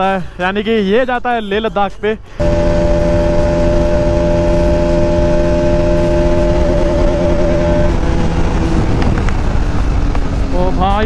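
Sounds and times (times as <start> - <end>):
road and wind rush: 2.2 - 11.0
motorcycle engine running: 2.4 - 11.0.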